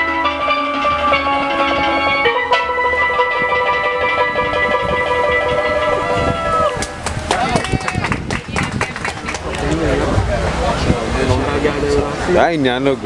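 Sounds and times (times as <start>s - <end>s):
steel pans played with sticks: 0.0s - 7.9s.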